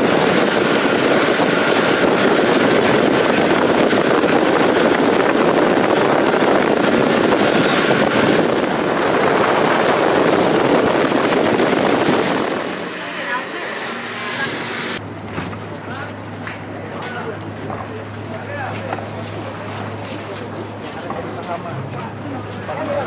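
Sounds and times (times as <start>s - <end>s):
wind on microphone: 0.0s - 13.1s
water rushing: 0.0s - 15.0s
motorboat engine: 0.0s - 23.0s.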